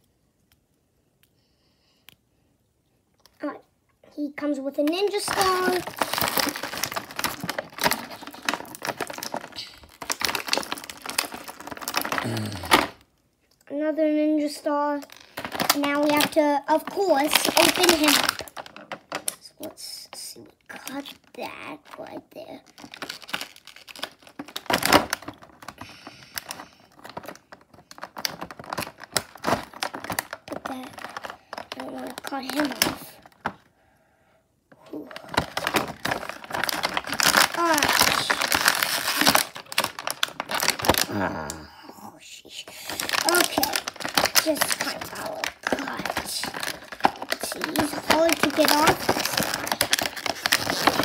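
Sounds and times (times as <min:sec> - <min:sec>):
plastic packaging crackling: 0:04.4 - 0:13.1, 0:14.4 - 0:33.7, 0:34.7 - 0:41.6, 0:42.5 - 0:51.0
plastic bag crinkling: 0:04.6 - 0:13.0, 0:14.5 - 0:33.7, 0:34.8 - 0:41.6, 0:42.6 - 0:51.0
scissors cutting plastic: 0:42.9 - 0:51.0.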